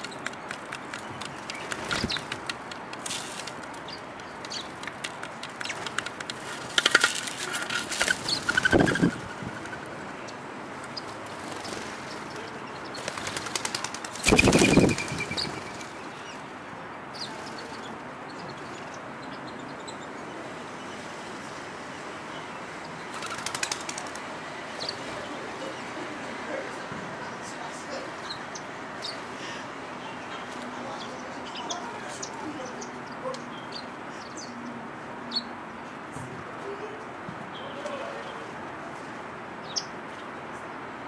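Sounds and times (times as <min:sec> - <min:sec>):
doves' wings flapping: 0:00.0 - 0:10.0, 0:10.8 - 0:16.3, 0:23.1 - 0:25.3.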